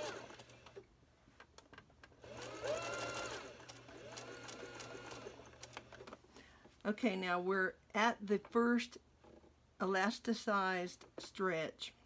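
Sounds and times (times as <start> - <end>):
sewing machine motor whine: 0.0 - 0.8, 2.2 - 5.9.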